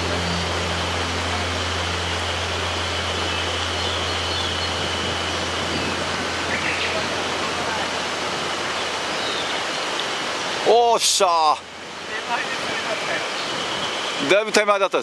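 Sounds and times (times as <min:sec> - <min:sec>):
low hum: 0:00.0 - 0:10.2
river rushing over rocks: 0:00.0 - 0:15.0.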